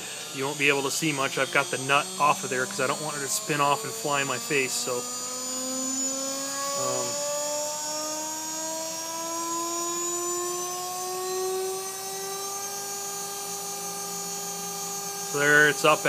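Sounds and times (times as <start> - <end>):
router spindle whine rising in pitch: 0.0 - 16.0.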